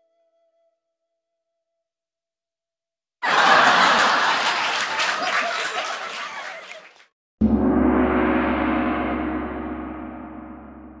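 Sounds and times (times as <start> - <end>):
applause: 3.2 - 7.1.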